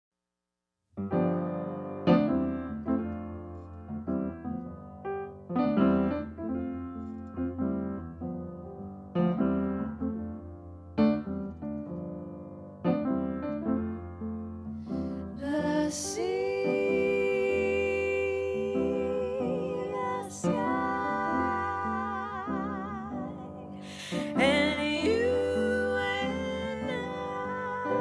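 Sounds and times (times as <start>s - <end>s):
piano playing jazz chords: 1.0s - 28.0s
women singing in harmony: 15.4s - 28.0s.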